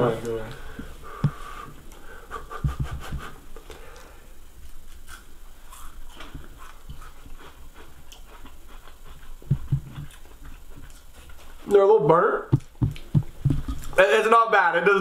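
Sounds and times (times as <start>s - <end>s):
person chewing: 1.3s - 11.6s, 12.6s - 14.0s.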